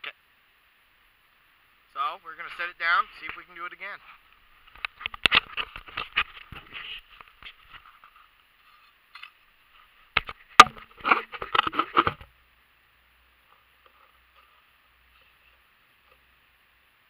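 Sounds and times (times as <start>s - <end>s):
camera crunching in snow: 2.5s - 8.9s
sharp knock: 10.6s - 10.9s.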